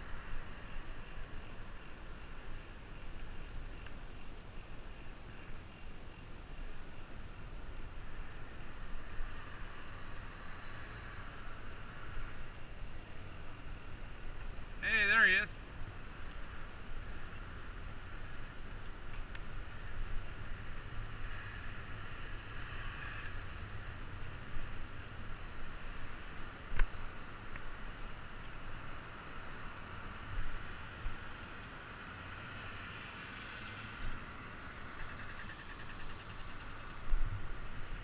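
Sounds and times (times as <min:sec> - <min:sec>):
traffic hiss: 0:00.0 - 0:38.0
wind rumbling on microphone: 0:36.4 - 0:38.0.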